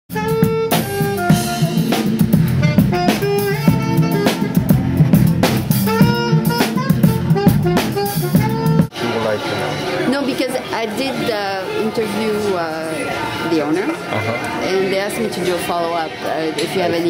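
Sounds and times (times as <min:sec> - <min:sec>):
drum kit with cymbals and snare: 0:00.1 - 0:08.9
saxophone melody: 0:00.1 - 0:09.4.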